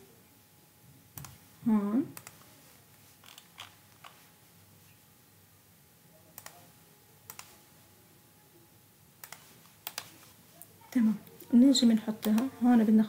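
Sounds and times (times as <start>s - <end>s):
computer mouse clicks: 1.1s - 1.4s, 2.2s - 2.5s, 6.4s - 6.7s, 7.3s - 7.6s, 9.2s - 10.3s, 12.1s - 12.5s.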